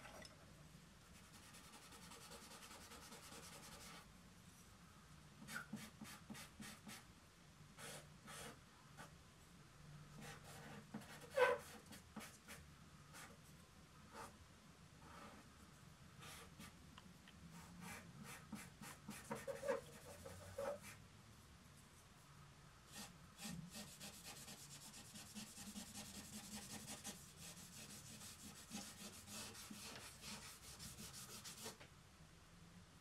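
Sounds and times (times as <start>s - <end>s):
drawing tool scratching paper: 1.2s - 4.0s, 17.8s - 21.0s, 22.9s - 31.8s.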